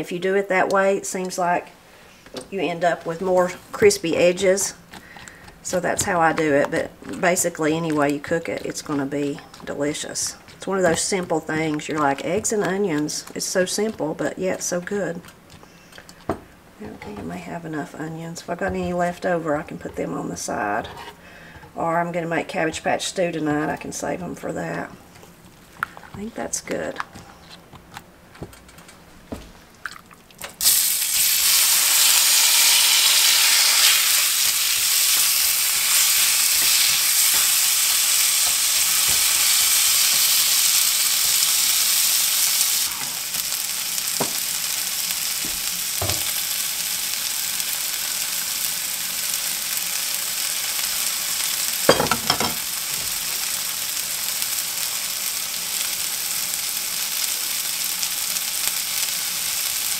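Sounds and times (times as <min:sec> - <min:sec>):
spatula scraping bowl: 0:18.6 - 0:21.2
food sizzling in pan: 0:30.6 - 0:59.9
spatula knocking: 0:51.9 - 0:52.6.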